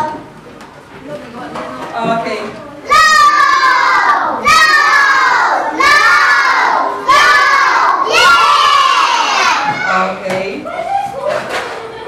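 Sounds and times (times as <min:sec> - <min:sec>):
children shouting in chorus: 0:02.9 - 0:09.9.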